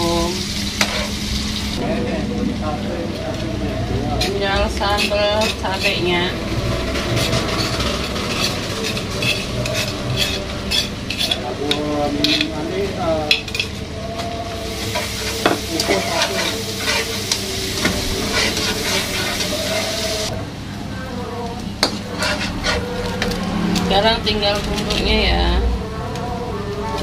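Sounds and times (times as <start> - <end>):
oil sizzling in a frying pan: 0.0 - 2.7, 12.3 - 20.4
metal utensils scraping a pan: 0.8 - 1.2, 4.1 - 13.9, 14.7 - 20.4, 21.8 - 25.2.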